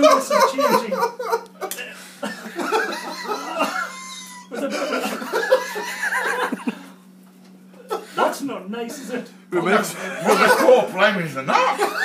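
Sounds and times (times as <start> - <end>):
people laughing: 0.0 - 7.0, 9.7 - 12.0
steady low hum: 0.0 - 12.0.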